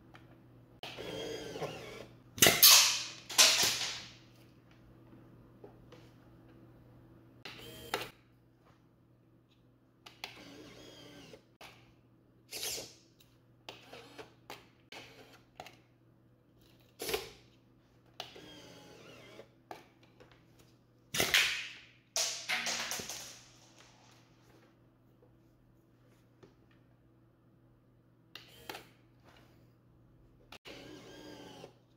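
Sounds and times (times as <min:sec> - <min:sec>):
small electric motor whirring: 0:00.9 - 0:02.2, 0:10.3 - 0:11.5, 0:18.2 - 0:19.6, 0:30.6 - 0:31.8.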